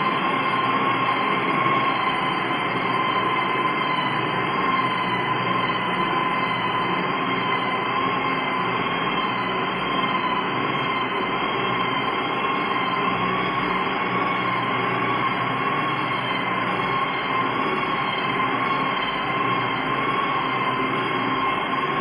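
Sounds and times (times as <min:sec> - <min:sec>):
electric sander whining: 0:00.0 - 0:22.0.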